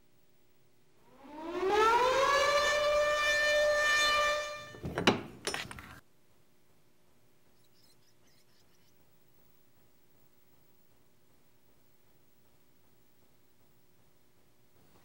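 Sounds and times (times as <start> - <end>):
rising siren-like tone: 1.0 - 4.8.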